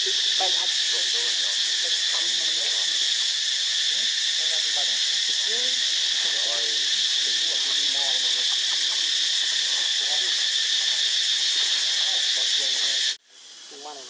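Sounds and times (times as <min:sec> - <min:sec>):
high-pitched insect drone: 0:00.0 - 0:14.0.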